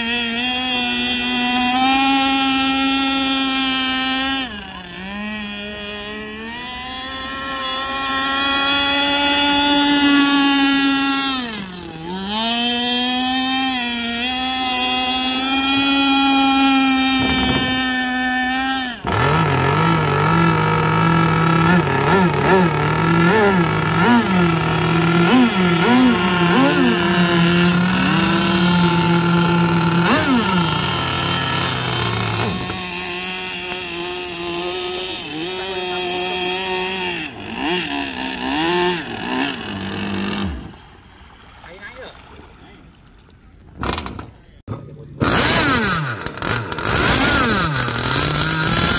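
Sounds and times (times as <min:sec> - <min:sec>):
model boat engine running: 0:00.0 - 0:41.2, 0:44.1 - 0:48.9.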